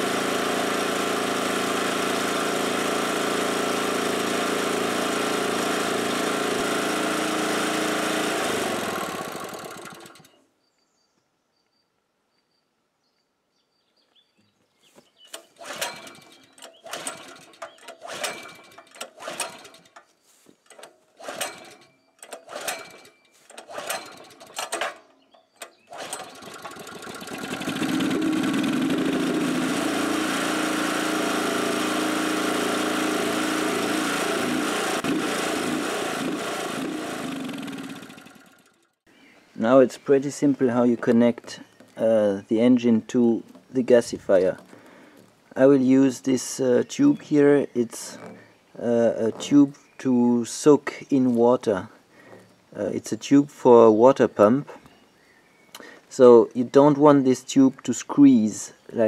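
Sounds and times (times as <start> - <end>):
recoil starter pulls: 0.0 - 10.4, 15.3 - 39.0, 46.9 - 50.0
small gasoline engine running: 0.0 - 10.4, 15.5 - 20.0, 20.7 - 24.9, 25.7 - 39.0.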